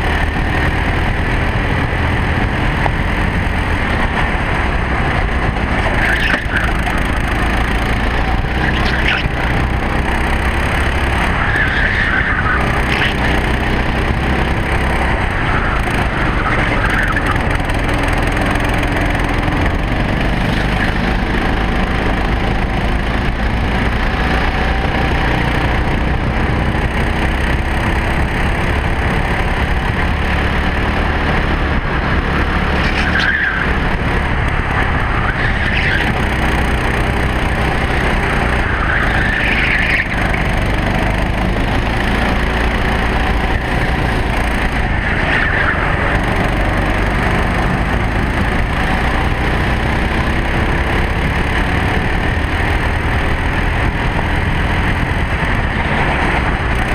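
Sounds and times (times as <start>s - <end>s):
kart engine running hard: 0.0s - 56.9s
tyre squeals: 32.7s - 33.8s, 38.6s - 40.3s.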